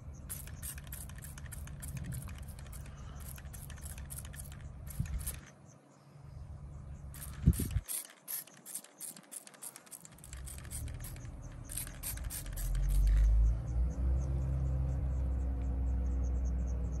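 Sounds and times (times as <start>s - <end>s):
low mechanical rumble with hum: 0.0s - 8.6s, 10.1s - 17.0s
light regular ticking: 0.1s - 5.7s, 7.0s - 14.3s
rapid clicking: 0.3s - 5.6s, 7.2s - 13.3s.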